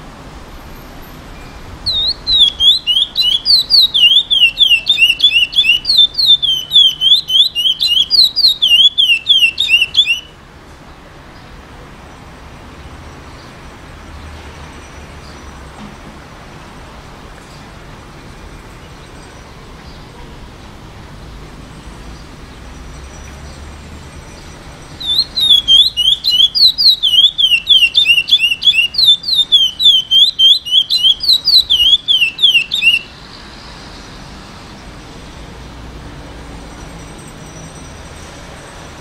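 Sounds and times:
finch singing short notes: 0:01.8 - 0:10.3, 0:25.0 - 0:33.1.

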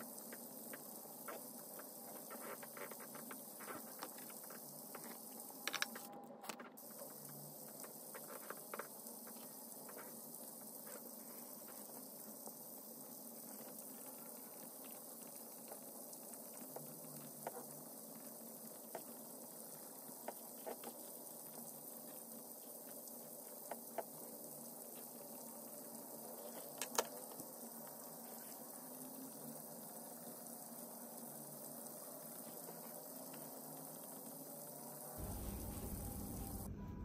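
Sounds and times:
pen scratching on paper: 0:01.3 - 0:05.2
steady low hiss: 0:35.2 - 0:37.0.

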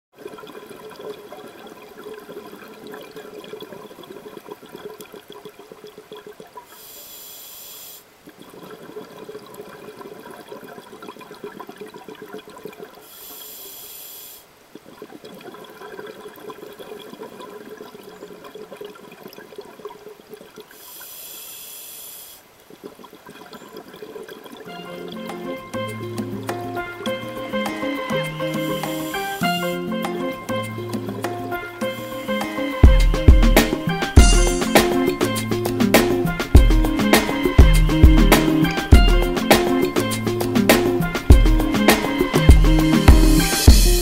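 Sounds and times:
regulator inhalation hiss: 0:06.7 - 0:08.2, 0:13.0 - 0:14.6, 0:20.7 - 0:22.5, 0:27.7 - 0:29.8, 0:31.9 - 0:32.7.

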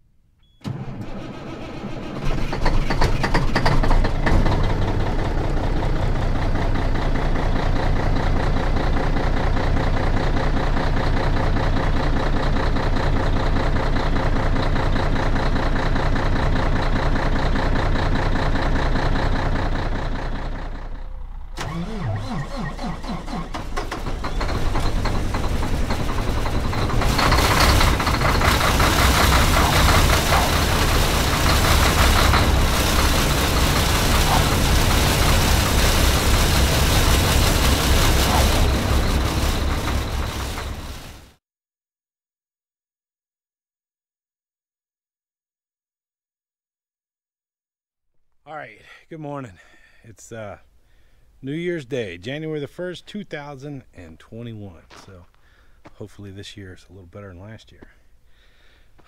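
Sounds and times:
diesel truck engine starting and idling: 0:00.1 - 0:41.4
loud rushing engine: 0:03.8 - 0:08.3, 0:21.5 - 0:41.4.

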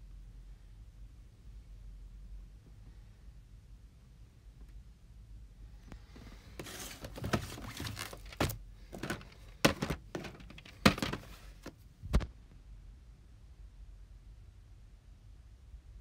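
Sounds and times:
rustling of tape cases: 0:05.9 - 0:11.8
plastic cases knocking on wood: 0:06.6 - 0:11.7.

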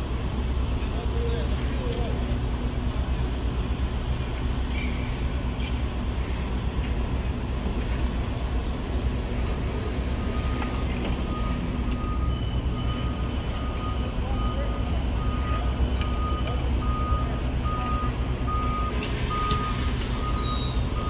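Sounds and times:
train wheels rumbling on rail: 0:00.0 - 0:14.2.

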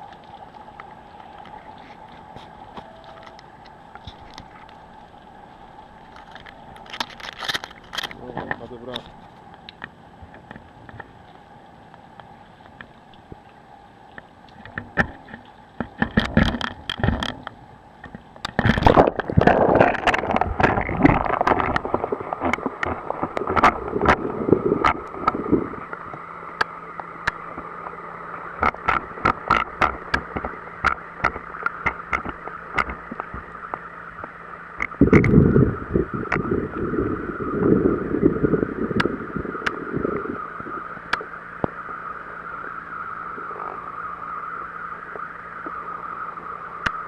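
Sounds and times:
steady low hum: 0:00.0 - 0:47.0
water splashing and gurgling: 0:00.0 - 0:47.0
underwater clicks and knocks: 0:06.1 - 0:11.2, 0:14.1 - 0:28.0, 0:28.6 - 0:36.5.

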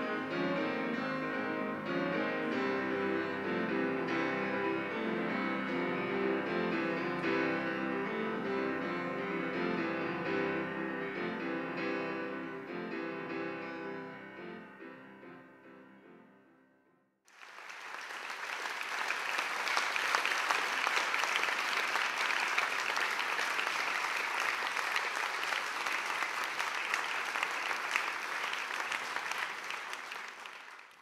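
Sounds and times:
audience applauding: 0:17.3 - 0:31.0.

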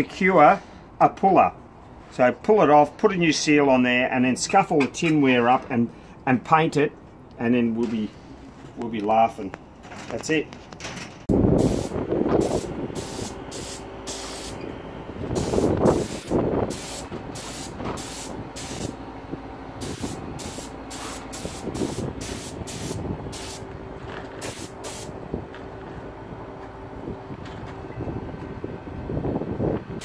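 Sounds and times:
spray gun hissing: 0:11.6 - 0:14.6, 0:15.4 - 0:19.0, 0:19.8 - 0:23.6, 0:24.4 - 0:25.1.

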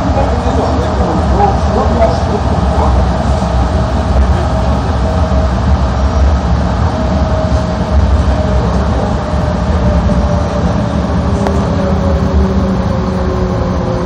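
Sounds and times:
train rumbling in a tunnel: 0:00.0 - 0:14.0
train motor whine: 0:10.0 - 0:14.0.

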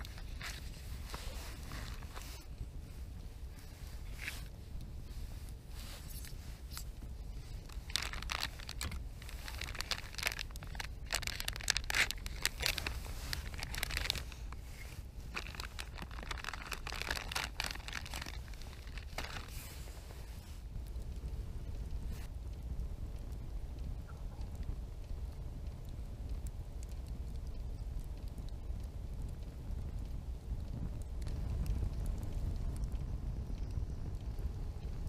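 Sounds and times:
steady low rumble: 0:00.0 - 0:35.0
plastic packaging crinkling: 0:07.5 - 0:19.8.

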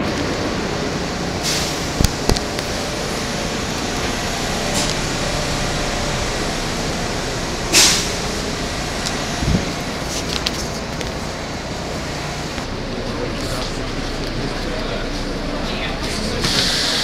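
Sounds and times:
crowd walking: 0:00.0 - 0:17.0
subway platform noise: 0:00.0 - 0:17.0
burst of hiss: 0:01.4 - 0:01.9, 0:07.7 - 0:08.2, 0:16.4 - 0:17.0.

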